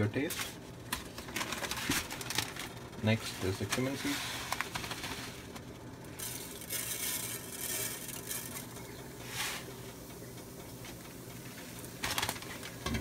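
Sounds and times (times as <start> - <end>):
steady low hum: 0.0 - 13.0
seeds sizzling in hot oil: 6.1 - 10.6.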